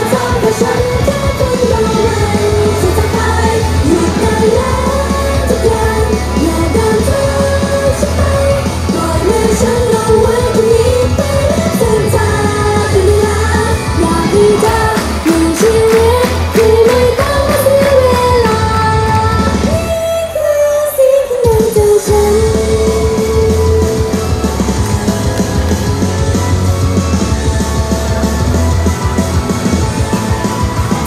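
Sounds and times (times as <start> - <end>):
women singing into microphones: 0.0 - 24.4
amplified pop music: 0.0 - 31.0.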